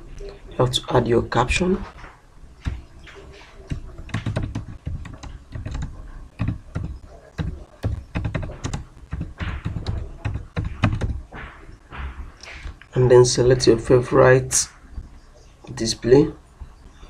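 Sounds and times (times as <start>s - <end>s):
computer keyboard typing: 2.6s - 11.3s.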